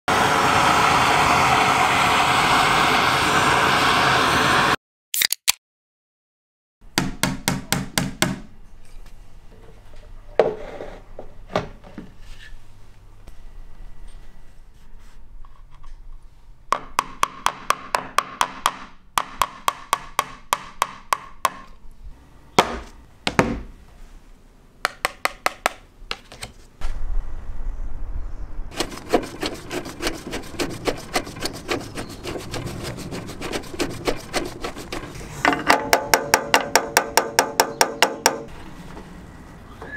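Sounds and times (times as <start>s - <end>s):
hammer tapping a nail: 7.0s - 8.4s, 16.7s - 21.7s, 24.8s - 25.8s, 35.5s - 38.5s
workshop tool sounds: 28.7s - 38.6s.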